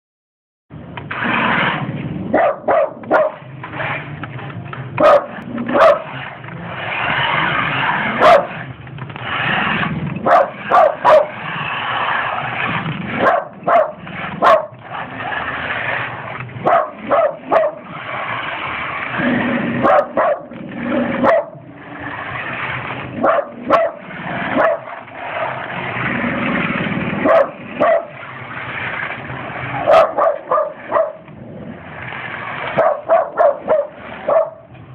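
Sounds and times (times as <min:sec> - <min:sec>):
steady rushing noise: 0:00.8 - 0:34.9
dog barking: 0:02.3 - 0:03.4, 0:05.0 - 0:06.1, 0:08.2 - 0:08.6, 0:10.2 - 0:11.3, 0:13.2 - 0:14.8, 0:16.6 - 0:17.9, 0:19.8 - 0:20.5, 0:21.2 - 0:21.6, 0:23.2 - 0:25.0, 0:27.2 - 0:28.2, 0:29.9 - 0:31.2, 0:32.8 - 0:34.7.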